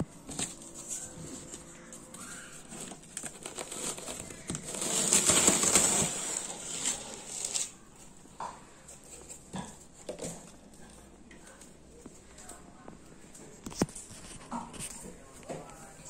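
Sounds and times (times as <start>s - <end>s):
protective wrapping rustling and crinkling: 0.0s - 10.8s.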